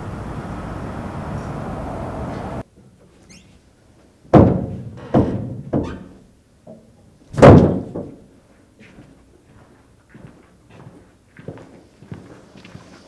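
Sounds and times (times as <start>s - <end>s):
faint footsteps: 8.4s - 13.0s.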